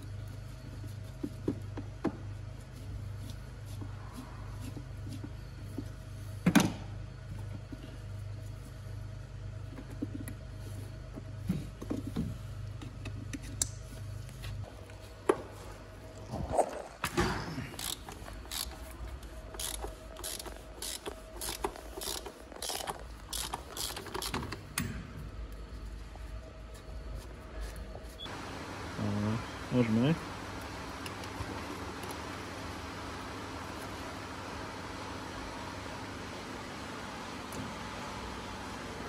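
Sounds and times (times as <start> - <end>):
ratchet wrench clicking: 17.8 - 18.9, 19.5 - 24.5.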